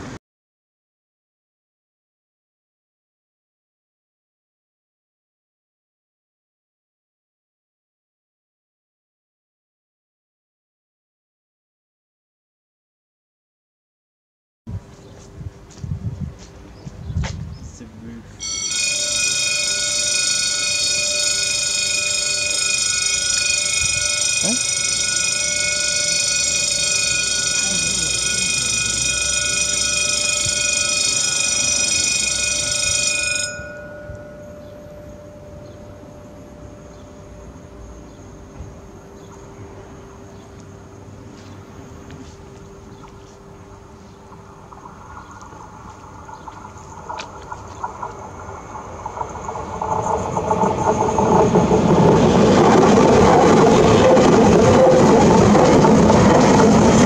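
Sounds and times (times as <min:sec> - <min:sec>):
electric train passing: 0:00.0 - 0:00.2, 0:14.8 - 0:57.0
rhythmic rail clatter: 0:14.9 - 0:57.0
level crossing warning bell: 0:18.2 - 0:44.6.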